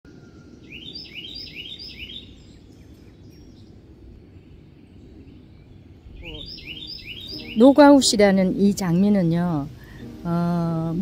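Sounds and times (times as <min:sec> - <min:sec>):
outdoor background noise: 0:00.0 - 0:11.0
songbird whistling: 0:00.1 - 0:08.2.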